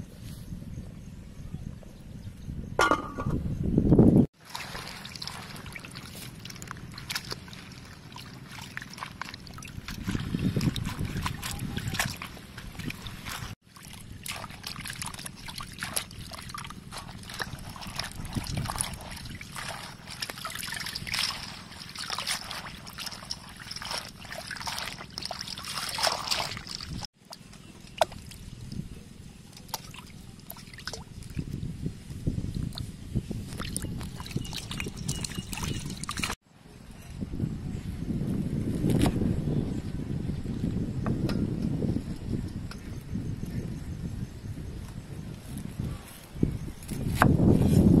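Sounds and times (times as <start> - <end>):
water splashing in metal basin: 4.4 - 28.4, 29.6 - 31.5, 33.5 - 36.4.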